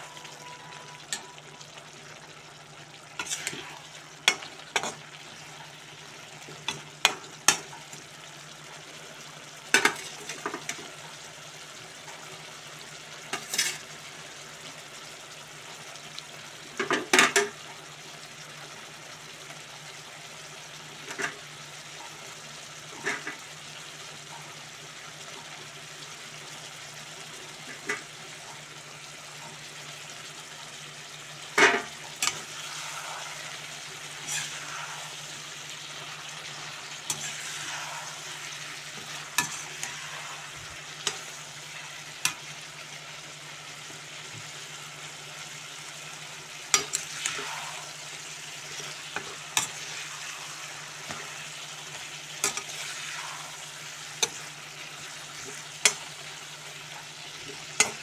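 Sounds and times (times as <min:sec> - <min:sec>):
curry sizzling in a pan: 0:00.0 - 0:58.0
spatula scraping and knocking pan: 0:34.2 - 0:34.8.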